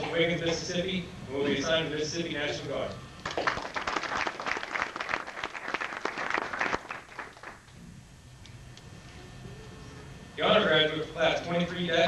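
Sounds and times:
audience clapping: 0:03.2 - 0:07.8.

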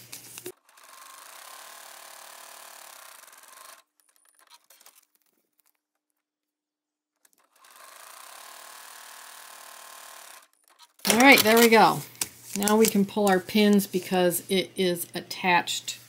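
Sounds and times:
sewing machine stitching: 0:00.5 - 0:05.1, 0:07.3 - 0:12.0.

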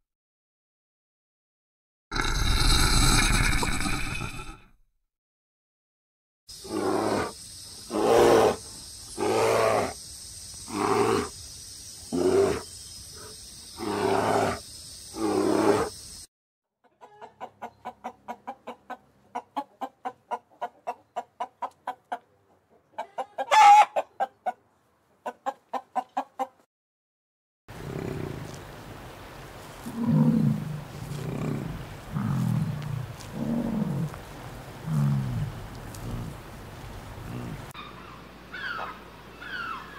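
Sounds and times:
bird shriek: 0:37.8 - 0:39.9.

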